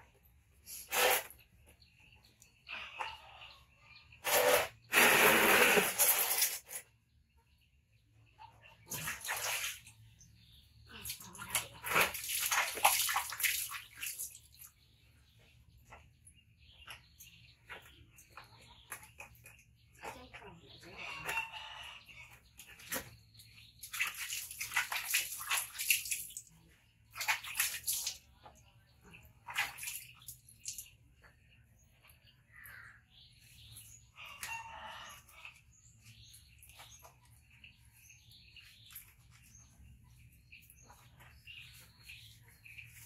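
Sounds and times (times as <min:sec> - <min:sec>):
water splashing and sloshing: 0:08.0 - 0:21.4, 0:22.2 - 0:34.5, 0:35.1 - 0:43.0.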